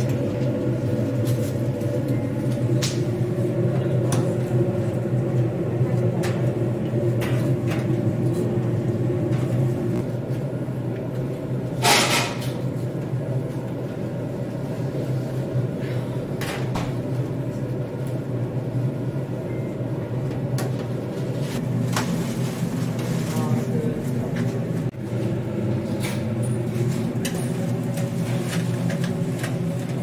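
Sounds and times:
tongs and fryer baskets clattering: 0:11.8 - 0:12.7, 0:25.2 - 0:30.0.

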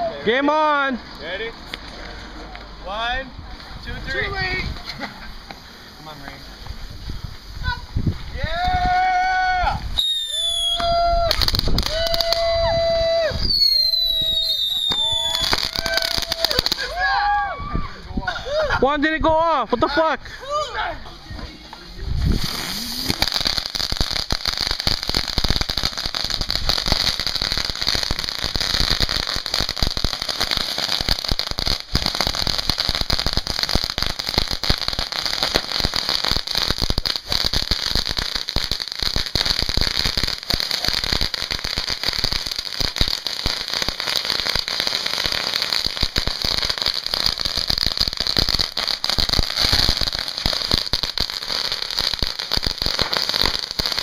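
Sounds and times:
fireworks crackling pops: 0:00.8 - 0:17.4, 0:20.8 - 0:54.0
hiss of sparking fountains: 0:03.5 - 0:08.6, 0:21.6 - 0:54.0.

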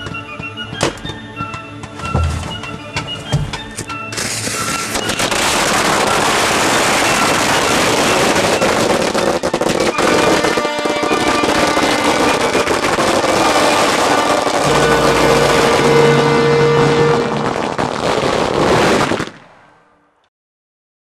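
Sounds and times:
music playing: 0:00.0 - 0:05.3, 0:10.4 - 0:18.3
fireworks cracking and banging: 0:04.1 - 0:19.6.

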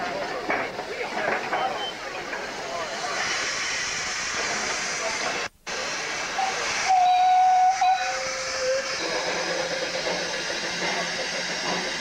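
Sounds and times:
steam hissing: 0:00.0 - 0:12.0
steam whistle: 0:06.4 - 0:09.0.

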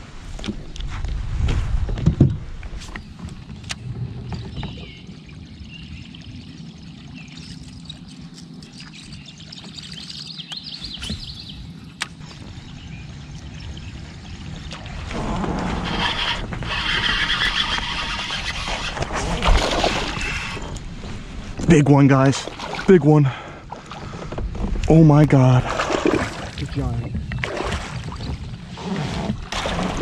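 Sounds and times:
water: 0:00.0 - 0:30.0
gear clicking against hull: 0:14.7 - 0:20.9.

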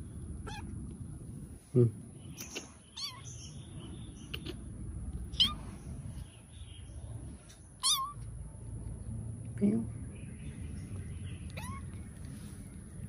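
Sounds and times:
kitten mewing: 0:00.4 - 0:00.8, 0:05.3 - 0:05.6, 0:07.8 - 0:08.2.

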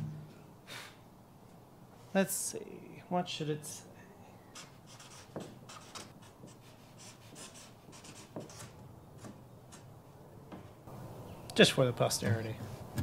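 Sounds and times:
marker scratching on plywood: 0:04.5 - 0:09.9.

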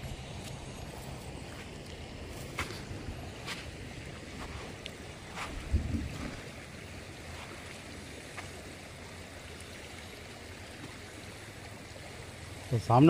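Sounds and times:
stream water flowing: 0:00.0 - 0:13.0.

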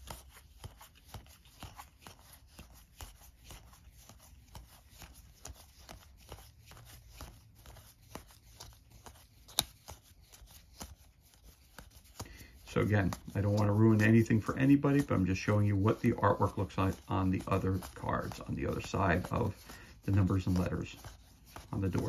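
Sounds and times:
cards sliding off a deck: 0:00.0 - 0:22.0.

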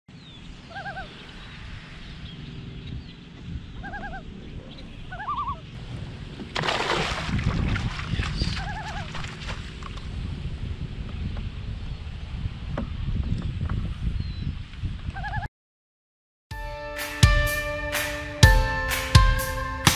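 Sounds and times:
warbling bird calls: 0:00.2 - 0:06.4, 0:08.0 - 0:09.5, 0:15.1 - 0:15.5
loud water splash: 0:06.4 - 0:09.7.

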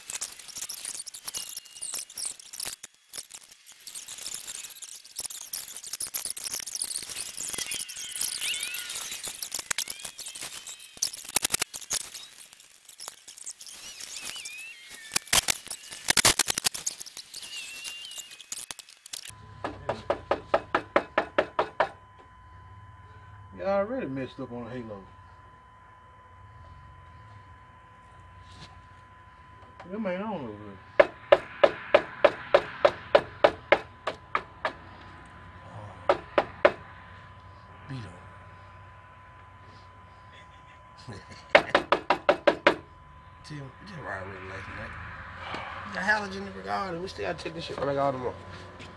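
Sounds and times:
low hum: 0:00.0 - 0:48.9
sharp knocks: 0:31.0 - 0:34.8, 0:36.1 - 0:36.8.

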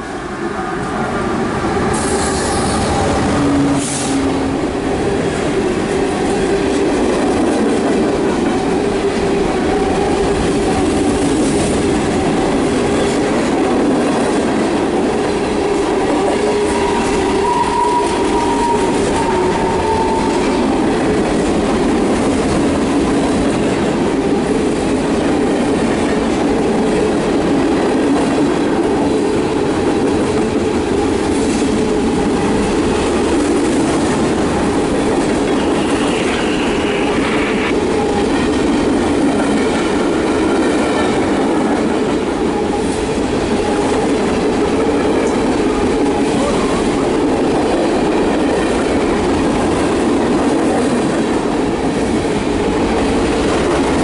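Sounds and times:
clickety-clack of wheels on rails: 0:00.0 - 0:54.0
freight train rumbling past: 0:00.0 - 0:54.0
high wheel squeal: 0:16.7 - 0:20.4.

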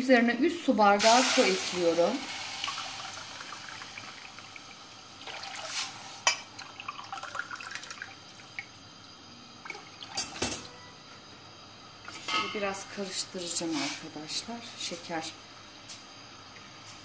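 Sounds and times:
water poured into a steel pot: 0:01.0 - 0:08.7
tap water running into a glass: 0:01.1 - 0:08.8.

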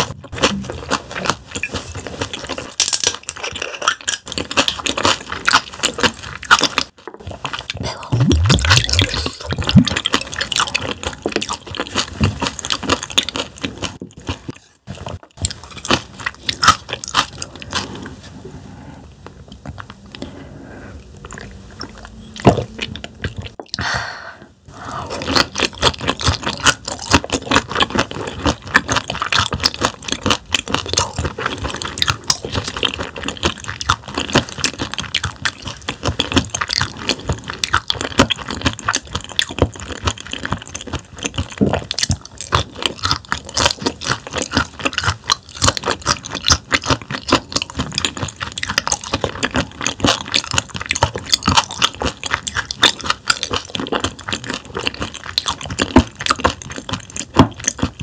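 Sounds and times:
wet crunching chewing: 0:00.0 - 0:18.2, 0:21.0 - 0:23.9, 0:24.7 - 0:58.0.

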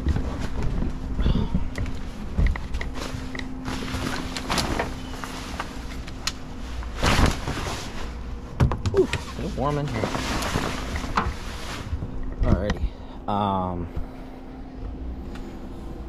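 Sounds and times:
canvas rustling: 0:02.0 - 0:08.4, 0:09.2 - 0:12.1.

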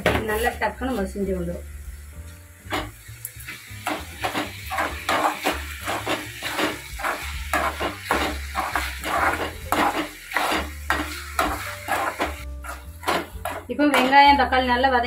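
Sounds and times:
food sizzling in oil: 0:00.0 - 0:15.0
metal spoon scraping pan: 0:03.8 - 0:14.7.

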